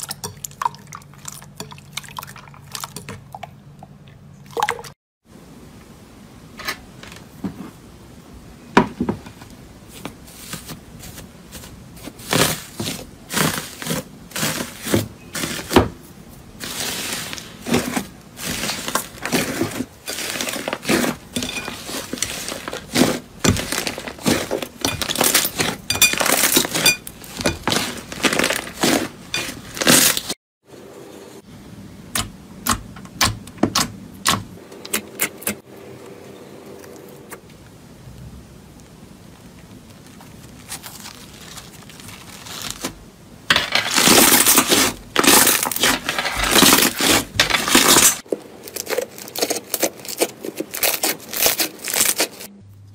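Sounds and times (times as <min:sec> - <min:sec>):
metallic foil crinkling: 0:16.4 - 0:30.4, 0:39.3 - 0:52.5.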